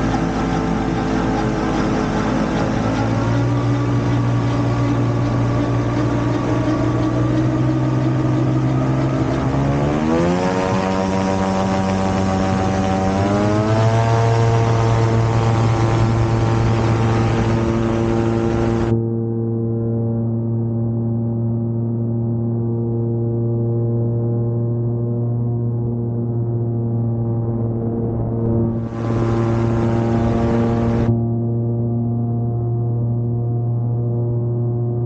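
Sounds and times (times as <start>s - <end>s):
gyrocopter engine revving: 0.0s - 19.0s, 27.0s - 32.1s.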